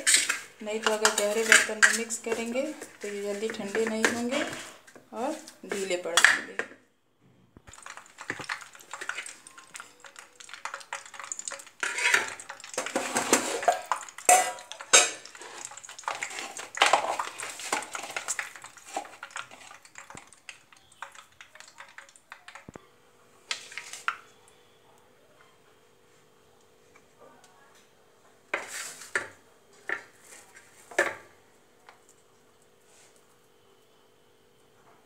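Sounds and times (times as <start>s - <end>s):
spoon scraping a steel plate: 0.0s - 4.8s, 11.8s - 16.5s
faint steady hum: 0.0s - 35.0s.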